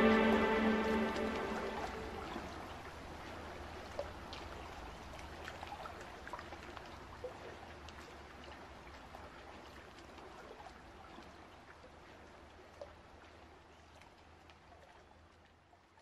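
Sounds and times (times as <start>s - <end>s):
music: 0.0s - 2.4s
faint trickling water: 0.0s - 16.0s
small water drips: 3.2s - 16.0s.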